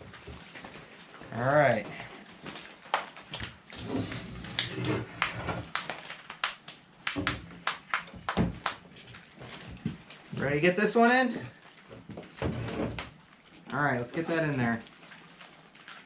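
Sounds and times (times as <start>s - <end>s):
wooden boards knocking on table: 8.2s - 8.8s.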